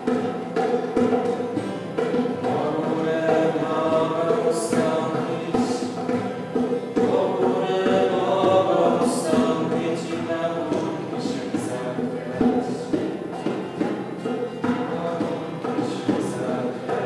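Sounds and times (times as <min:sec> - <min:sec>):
choir singing a slow chant: 0:02.5 - 0:06.2, 0:07.0 - 0:13.2.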